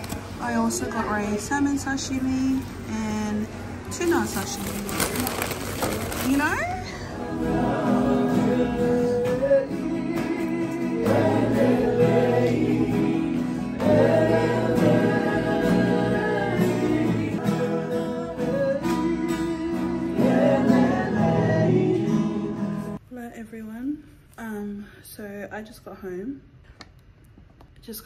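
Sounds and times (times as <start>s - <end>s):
acoustic guitar: 0.0s - 23.0s
group singing a hymn: 6.9s - 23.0s.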